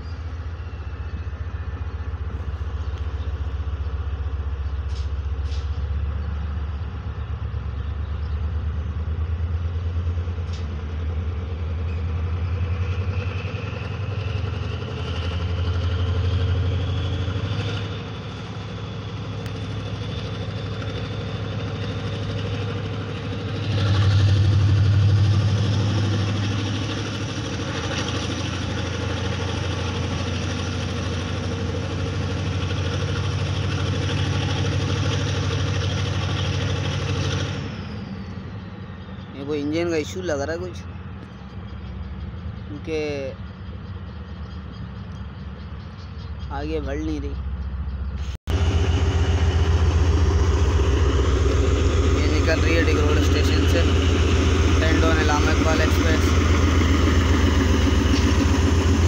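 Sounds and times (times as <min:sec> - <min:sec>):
locomotive engine humming: 0:00.0 - 0:59.0
rising engine whine: 0:00.0 - 0:59.0.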